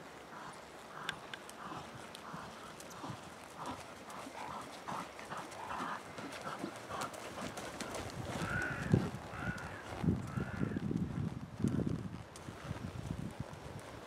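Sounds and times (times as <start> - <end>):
horse hoofbeats: 0.0 - 14.0
wind rumble on microphone: 7.7 - 14.0.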